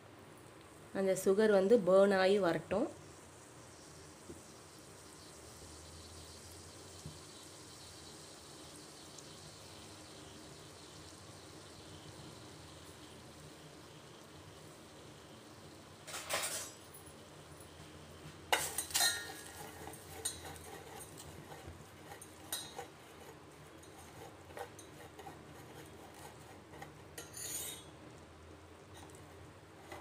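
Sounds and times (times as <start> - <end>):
spoon scraping metal pan: 18.5 - 27.9.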